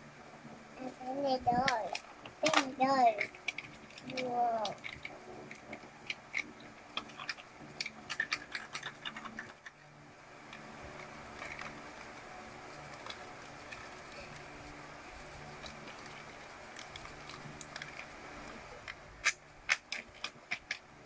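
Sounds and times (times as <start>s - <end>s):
plastic packaging crinkling: 2.4s - 9.8s.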